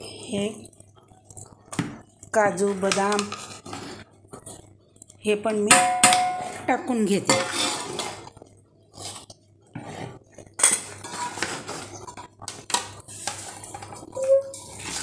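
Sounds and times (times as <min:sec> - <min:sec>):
spoon scraping metal bowl: 0:07.3 - 0:08.3, 0:09.0 - 0:12.3, 0:13.1 - 0:15.0.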